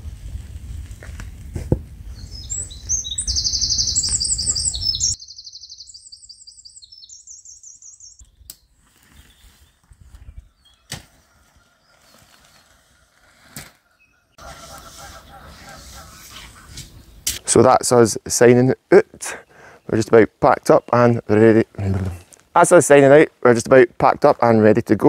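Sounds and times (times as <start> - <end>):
wind rumble on microphone: 0.0 - 5.1, 9.8 - 10.7
songbird singing high trills: 2.2 - 10.9.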